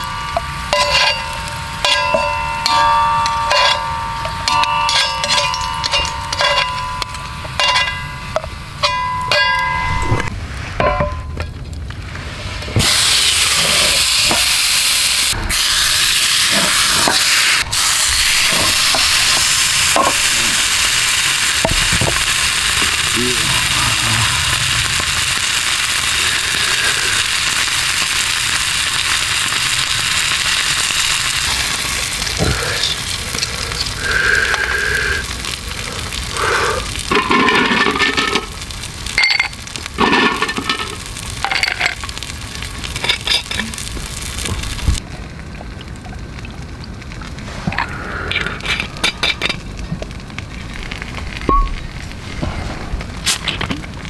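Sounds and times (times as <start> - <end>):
steak sizzling in a frying pan: 12.8 - 45.0.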